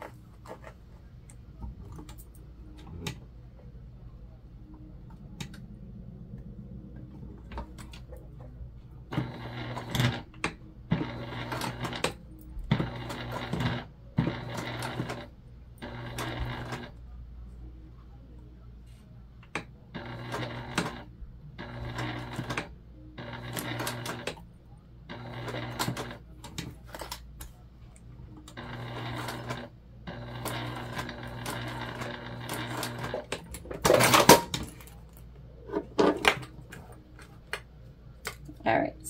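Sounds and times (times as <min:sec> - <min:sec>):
electric sewing machine running: 0:09.1 - 0:17.0, 0:20.0 - 0:24.4, 0:25.1 - 0:26.4, 0:28.5 - 0:34.5.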